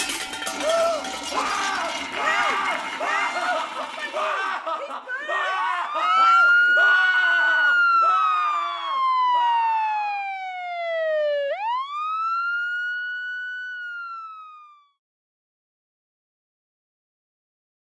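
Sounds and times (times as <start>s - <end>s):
people talking: 0.5s - 6.5s
emergency siren wailing: 5.8s - 15.0s.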